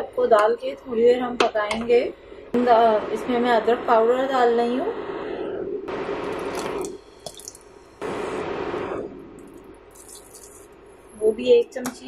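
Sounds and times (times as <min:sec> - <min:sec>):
soft steady background noise: 0:00.0 - 0:12.0
spice pouring hiss: 0:09.9 - 0:10.7.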